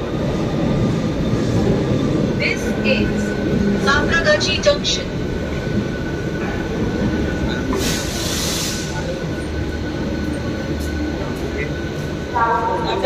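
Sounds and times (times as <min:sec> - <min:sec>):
train rumbling: 0:00.0 - 0:13.0
hiss: 0:07.7 - 0:09.0.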